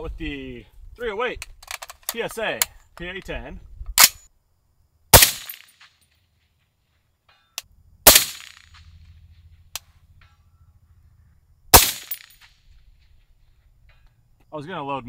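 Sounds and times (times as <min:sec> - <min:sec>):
suppressed rifle shots: 0:05.1 - 0:06.0, 0:08.0 - 0:09.9, 0:11.7 - 0:12.6.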